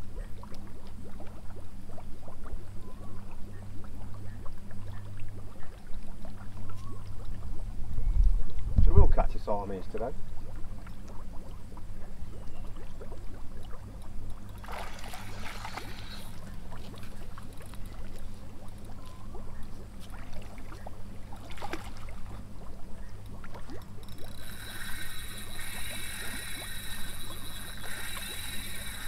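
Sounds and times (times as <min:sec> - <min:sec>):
wind rumble on microphone: 0:07.5 - 0:09.4
fish splashing at the surface: 0:12.8 - 0:29.0
high buzzing: 0:24.2 - 0:29.0.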